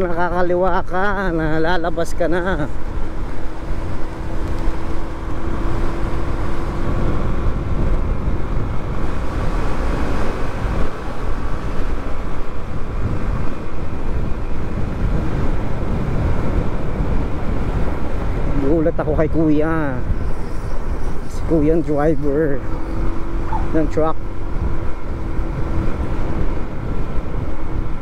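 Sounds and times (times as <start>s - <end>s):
road noise: 0.0s - 28.0s
wind buffeting microphone: 0.0s - 28.0s
motorcycle engine: 2.4s - 18.5s, 22.2s - 28.0s.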